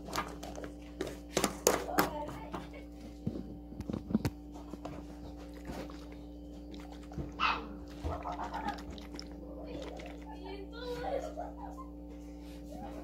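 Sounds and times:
steady electrical hum: 0:00.0 - 0:13.0
dog barking: 0:07.3 - 0:08.8.

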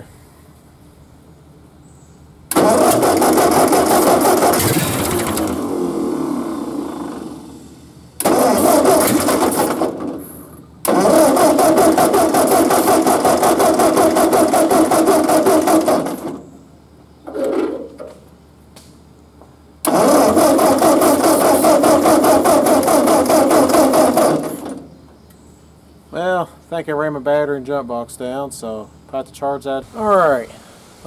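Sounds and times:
tractor engine cranking on starter: 0:02.5 - 0:07.4, 0:08.2 - 0:16.5, 0:19.8 - 0:24.9.

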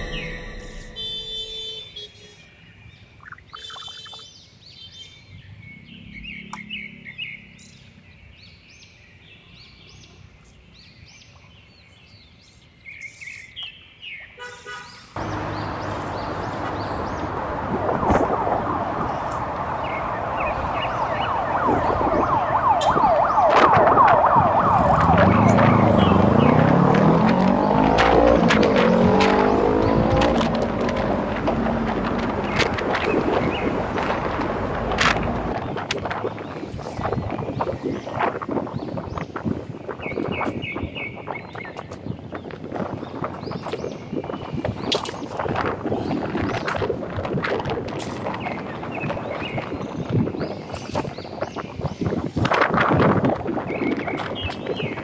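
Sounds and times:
scooter engine: 0:00.0 - 0:01.8, 0:15.2 - 0:21.6, 0:24.6 - 0:35.7
traffic noise: 0:00.0 - 0:55.0
wind noise: 0:15.2 - 0:55.0.

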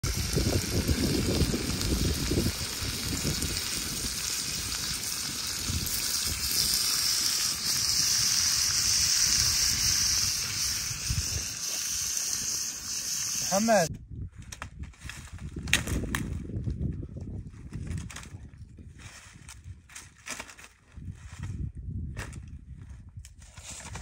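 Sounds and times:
running water rushing: 0:00.0 - 0:13.9.

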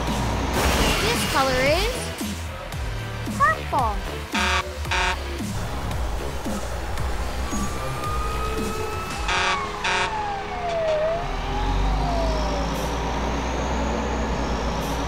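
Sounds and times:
short horn blasts: 0:04.4 - 0:05.3, 0:09.3 - 0:10.2
siren gliding in pitch: 0:06.5 - 0:14.6.

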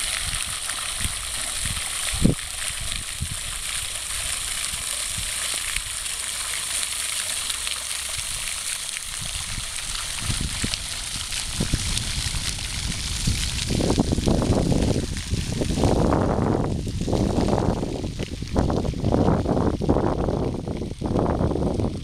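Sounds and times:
water splashing into a pond: 0:00.0 - 0:22.0.

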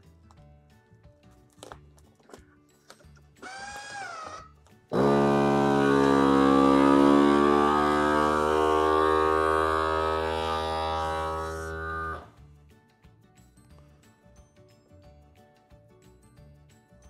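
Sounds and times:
vacuum sealer pump motor humming: 0:05.0 - 0:12.3.

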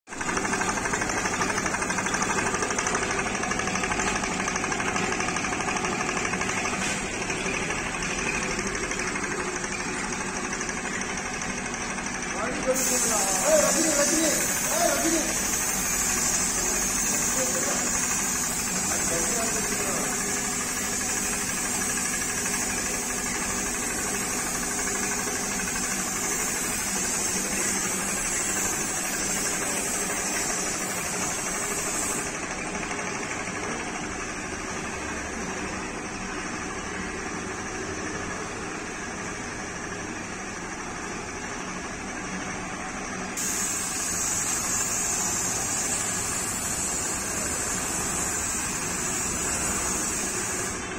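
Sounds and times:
steady mechanical hum: 0:00.1 - 0:50.9
spray gun air hissing: 0:12.6 - 0:32.4, 0:43.4 - 0:50.9.

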